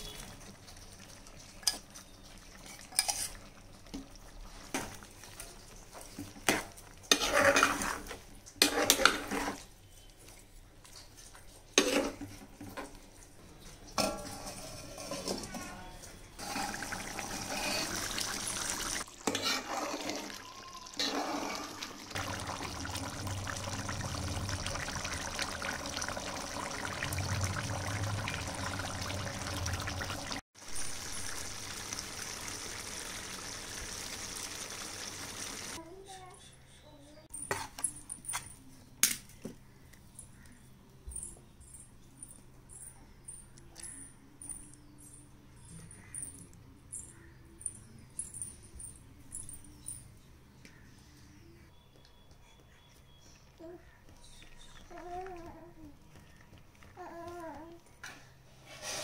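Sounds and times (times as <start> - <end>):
thick gravy cooking: 0.0 - 35.8
utensils and lid clanking: 1.6 - 3.5, 6.2 - 9.7, 13.9 - 22.6
metal spoon scraping steel pot: 2.6 - 3.4, 6.4 - 9.7, 14.0 - 20.4, 21.0 - 21.9.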